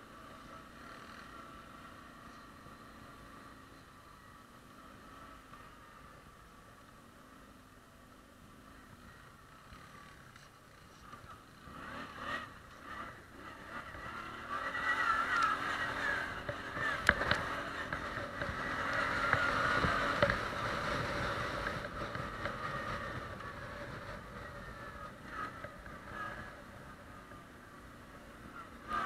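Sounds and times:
quad bike engine under load: 9.7 - 29.0.

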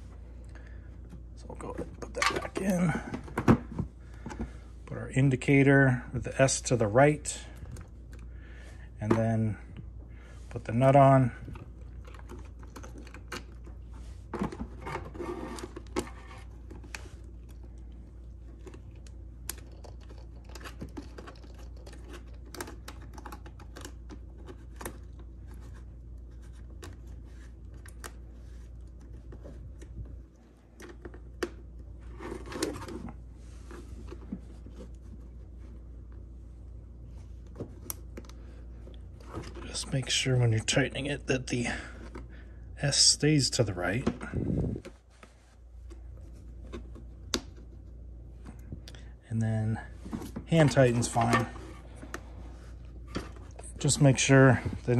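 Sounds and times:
steady low hum: 0.0 - 54.9
hands working plastic and metal parts: 11.4 - 35.4.

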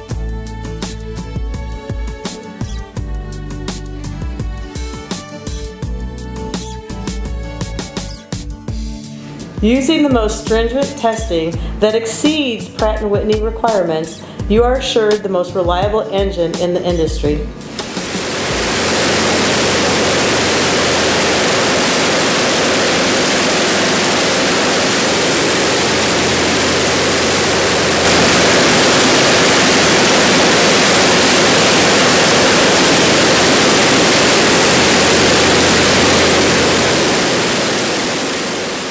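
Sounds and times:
aircraft engine and propeller roaring: 17.7 - 38.9.

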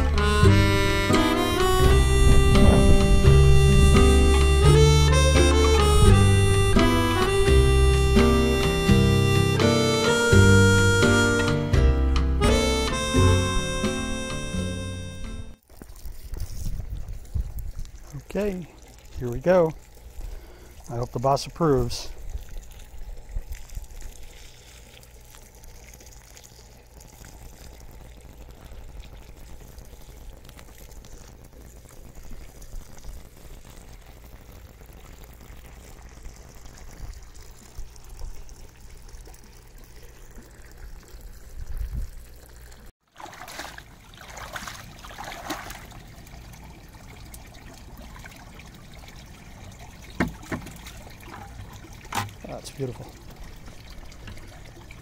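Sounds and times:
water trickling from hose: 0.0 - 11.7, 15.5 - 55.0
water sloshing and splashing: 15.6 - 32.6, 35.4 - 55.0.

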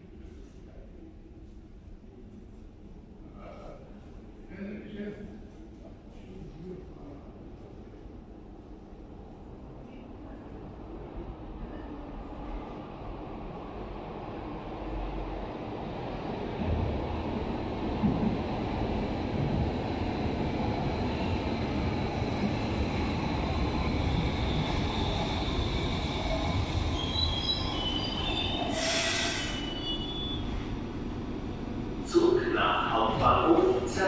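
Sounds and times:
train wheels rumbling on rails: 16.3 - 34.0
wheels and brakes squealing: 27.0 - 30.6.

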